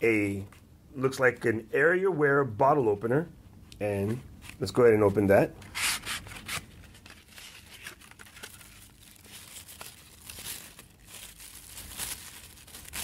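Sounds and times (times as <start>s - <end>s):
tissue paper crinkling: 5.8s - 13.0s.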